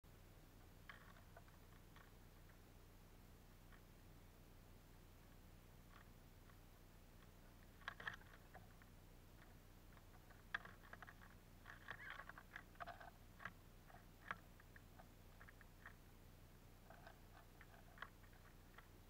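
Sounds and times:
birds cracking seeds: 0.6 - 2.8, 5.3 - 19.0.

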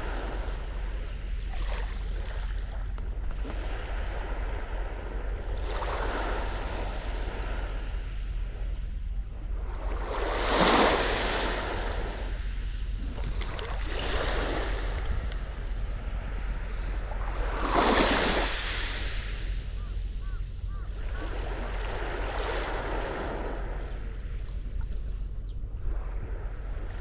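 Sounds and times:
waves washing on sandy beach: 5.5 - 7.7, 9.6 - 12.3, 16.4 - 19.5, 21.1 - 23.6.

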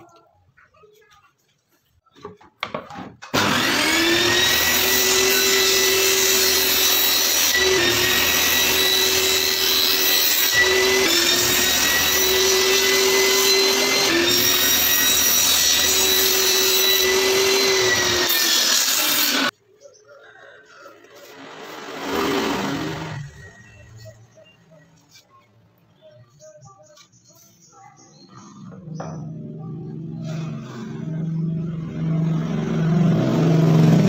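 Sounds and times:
table saw whining: 3.2 - 19.5, 21.0 - 24.4.

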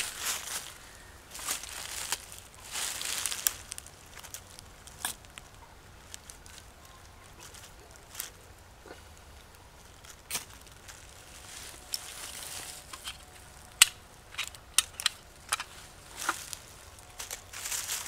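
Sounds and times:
sticks clicking and snapping: 12.8 - 16.6.

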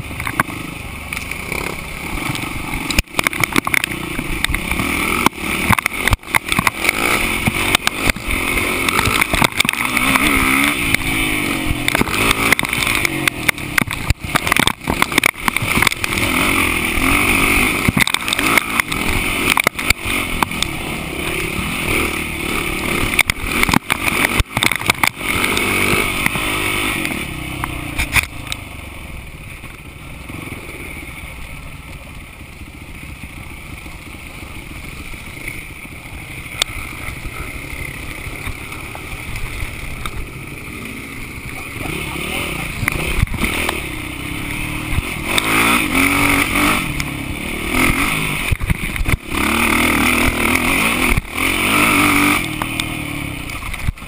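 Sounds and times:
knocks on rough trail: 0.0 - 28.6, 33.1 - 54.0
off-road vehicle engine: 0.0 - 54.0.

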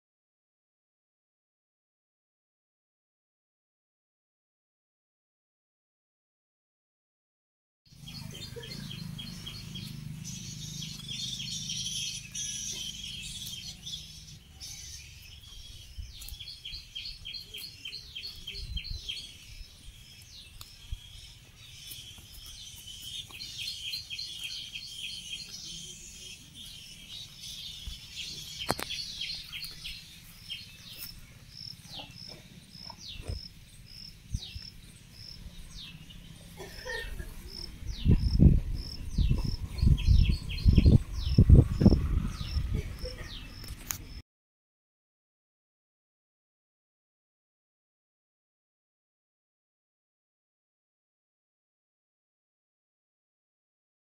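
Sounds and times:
birds chirping: 7.9 - 44.2.

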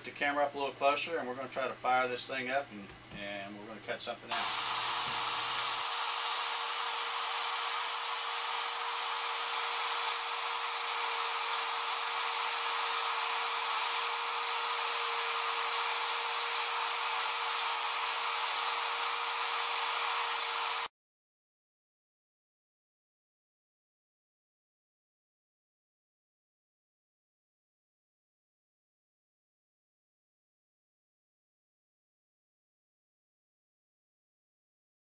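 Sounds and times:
router spindle whining: 4.3 - 20.9.

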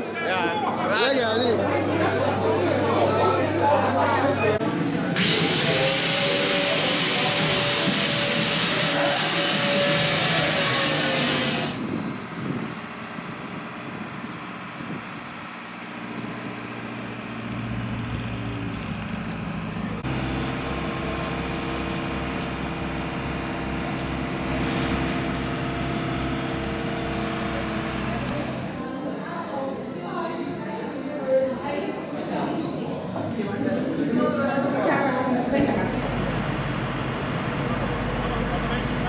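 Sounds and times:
spray gun hissing: 4.6 - 11.8
engine throbbing steadily: 17.4 - 28.8.

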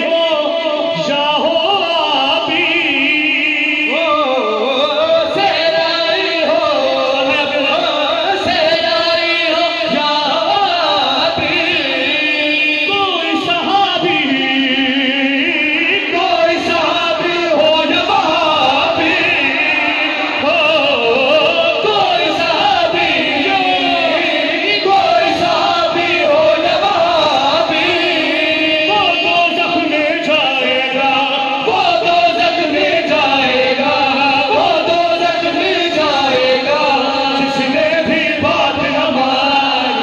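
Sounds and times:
men singing through a pa: 0.0 - 40.0.

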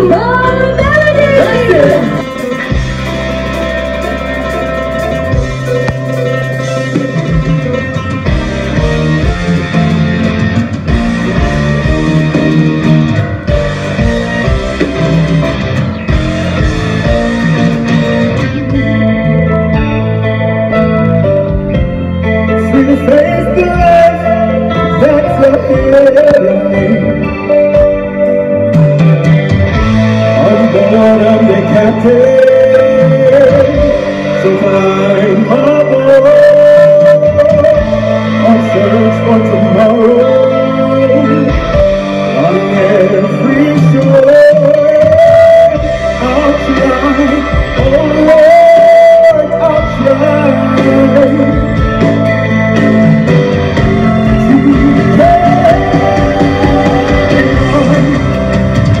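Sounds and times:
loud rock music: 0.0 - 59.0
person singing long held notes: 53.8 - 59.0.

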